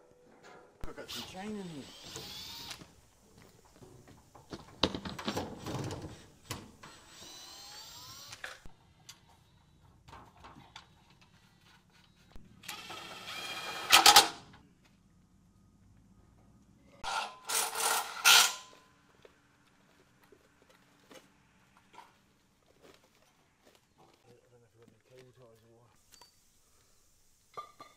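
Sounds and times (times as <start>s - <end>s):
cordless drill whirring: 1.1s - 2.9s, 6.8s - 8.6s, 12.6s - 14.1s.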